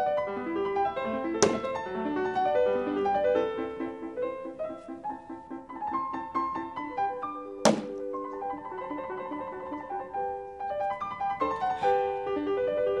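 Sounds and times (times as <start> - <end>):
piano music: 0.0 - 13.0
knife thunking into wooden board: 7.7 - 8.0.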